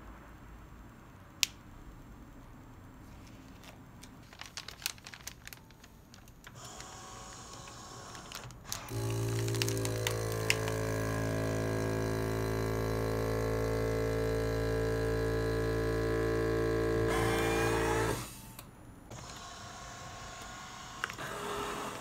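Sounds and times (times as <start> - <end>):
plastic bags crinkling: 3.4 - 6.8, 7.6 - 10.8
vacuum sealer pump humming: 6.5 - 22.0.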